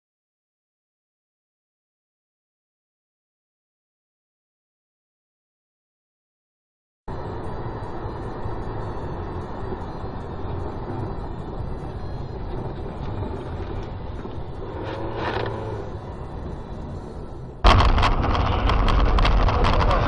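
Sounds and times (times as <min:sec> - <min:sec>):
car road and engine rumble: 0:07.1 - 0:20.0.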